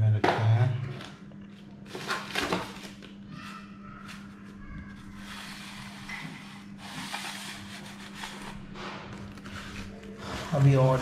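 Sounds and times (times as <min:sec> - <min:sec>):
plastic packaging crinkling: 0:01.7 - 0:03.4.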